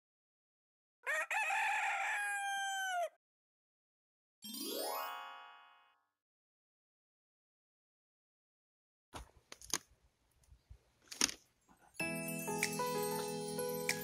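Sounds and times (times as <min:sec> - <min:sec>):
rooster crowing: 0:01.0 - 0:03.2
rising chime: 0:12.0 - 0:14.0.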